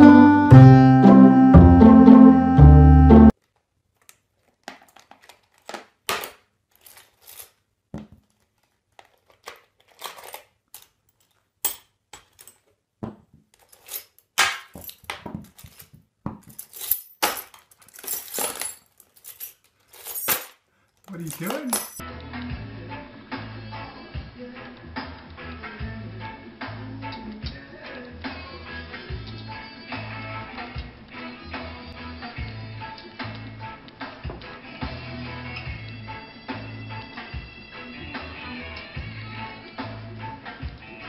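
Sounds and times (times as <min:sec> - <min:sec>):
background music: 0:00.0 - 0:03.3, 0:21.1 - 0:41.0
metal keys jingling in plastic tub: 0:06.7 - 0:07.6, 0:09.0 - 0:12.6, 0:13.6 - 0:22.0.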